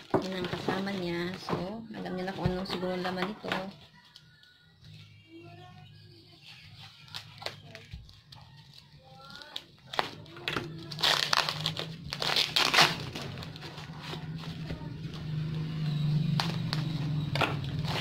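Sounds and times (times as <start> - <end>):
plastic wrapping crinkling and tearing: 6.4 - 15.2
tape being peeled: 6.5 - 14.7.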